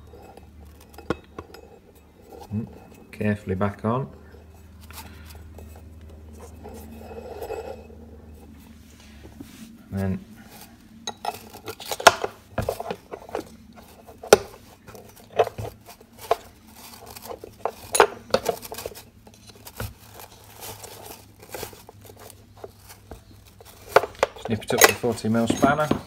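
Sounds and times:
spanner clinking on metal: 0:00.0 - 0:03.4, 0:20.6 - 0:26.0.

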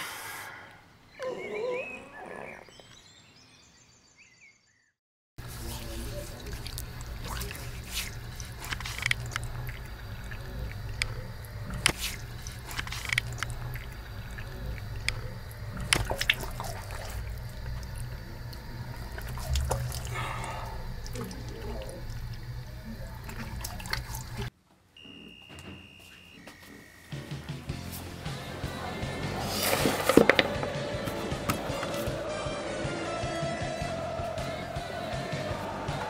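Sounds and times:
steady low hum: 0:05.4 - 0:24.5
water splashing and dripping: 0:05.4 - 0:24.5.

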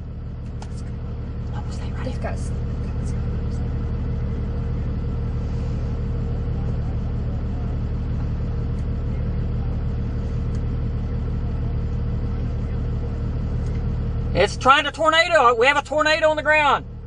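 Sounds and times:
vehicle engine idling: 0:00.0 - 0:17.0.

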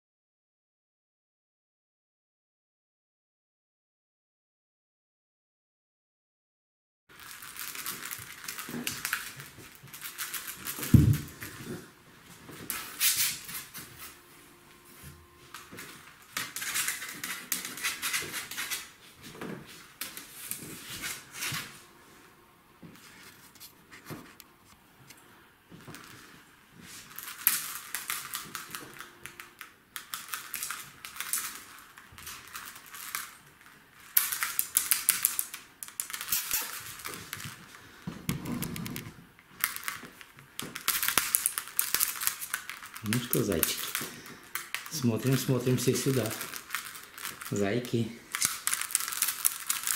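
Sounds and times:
kittens scratching on fabric: 0:07.4 - 0:21.8.

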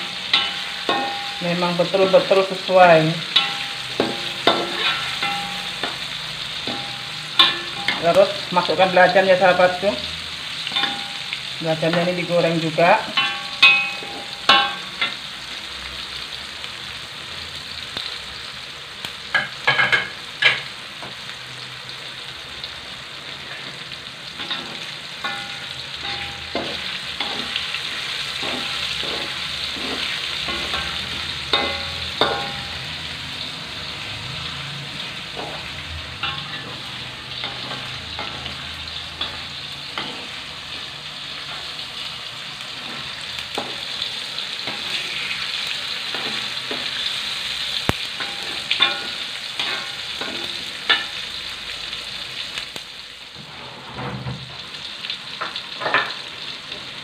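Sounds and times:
metal spatula scraping a wok: 0:00.0 - 0:02.4, 0:03.2 - 0:08.7, 0:23.4 - 0:41.8, 0:42.6 - 0:51.2, 0:53.4 - 0:54.3
food sizzling in oil in a wok: 0:00.0 - 0:57.0.

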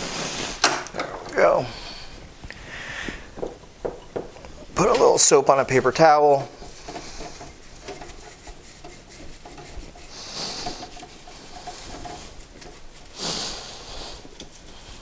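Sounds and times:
paper towel scrubbing metal: 0:04.8 - 0:15.0.

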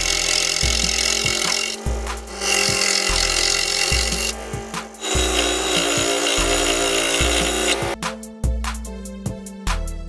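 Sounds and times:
scroll saw cutting wood: 0:00.0 - 0:08.0
background music with steady beat: 0:00.0 - 0:10.0.

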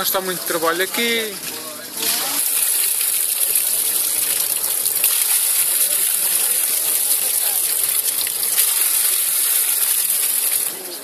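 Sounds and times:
water splashing into a pool: 0:00.0 - 0:11.0.

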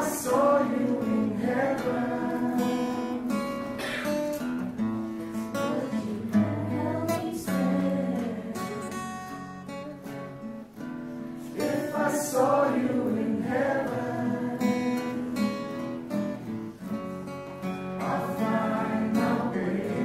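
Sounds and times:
group of voices singing: 0:00.0 - 0:04.0, 0:05.5 - 0:09.3, 0:11.4 - 0:16.2, 0:18.0 - 0:20.0
acoustic guitar strumming: 0:00.0 - 0:20.0.

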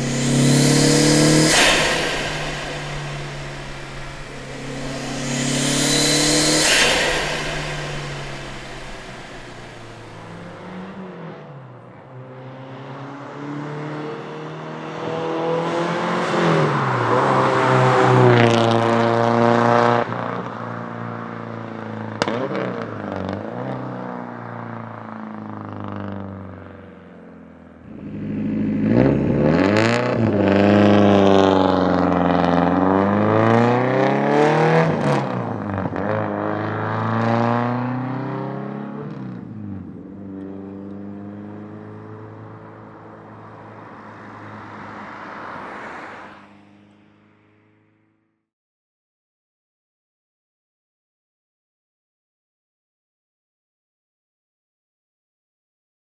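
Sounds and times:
car engine accelerating hard: 0:00.0 - 0:11.4, 0:27.8 - 0:45.8.

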